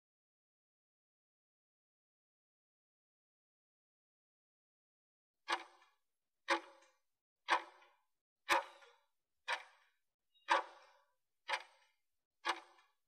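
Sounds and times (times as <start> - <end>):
clock ticking: 5.5 - 5.7, 6.5 - 6.9, 7.5 - 7.9, 8.5 - 8.9, 9.5 - 9.8, 10.5 - 11.8, 12.4 - 12.8.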